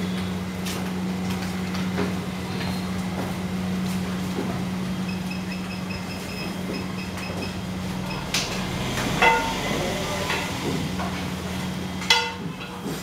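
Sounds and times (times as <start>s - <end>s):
low machine hum: 0.0s - 13.0s
sharp ringing clank: 9.2s - 9.7s.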